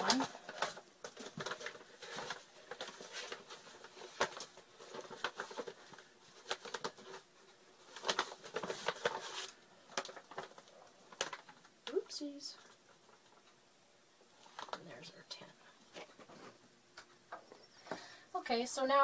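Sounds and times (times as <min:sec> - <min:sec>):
flour bag crinkling: 0:00.0 - 0:13.4.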